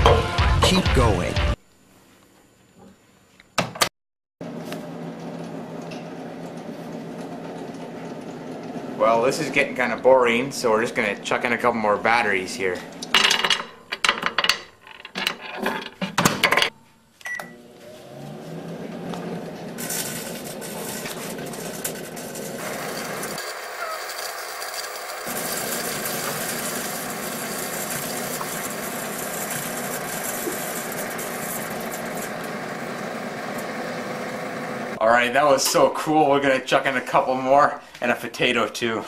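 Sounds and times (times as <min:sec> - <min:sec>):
microwave oven humming: 0:04.4 - 0:11.3, 0:17.2 - 0:35.0
microwave beep: 0:17.2 - 0:17.7
batteries sparking hiss: 0:22.6 - 0:32.4.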